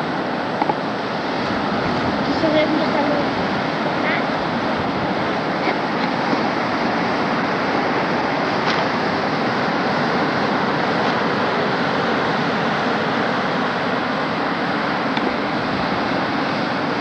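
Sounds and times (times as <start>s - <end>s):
wind: 0.0s - 17.0s
surf breaking on pebbles: 6.2s - 11.8s.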